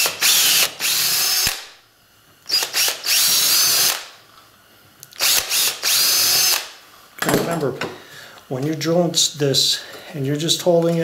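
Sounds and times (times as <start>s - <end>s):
power drill drilling plastic: 2.5s - 4.0s, 5.2s - 6.7s.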